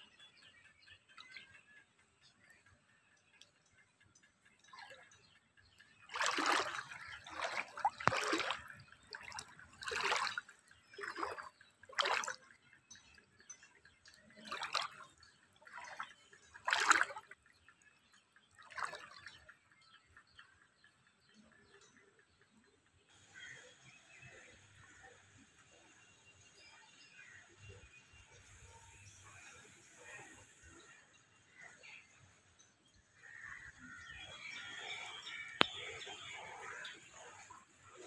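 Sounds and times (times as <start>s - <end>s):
footsteps wading through water: 6.1s - 12.6s, 14.1s - 17.4s, 18.6s - 19.4s, 34.5s - 38.0s.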